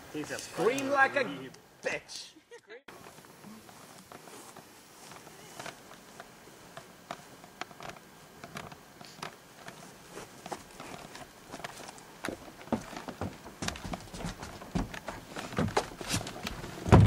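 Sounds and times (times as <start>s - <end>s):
faint hiss: 0.0s - 12.2s
footsteps on grass: 2.9s - 16.4s.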